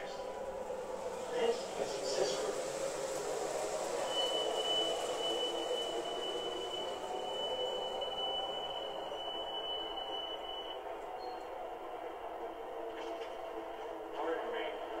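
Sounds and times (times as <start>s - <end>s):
model train motor and wheel rumble: 0.0s - 9.3s.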